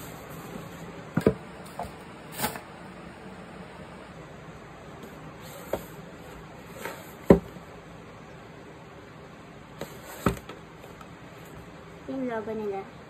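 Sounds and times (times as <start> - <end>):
cardboard box knocks and taps: 7.2 - 7.5.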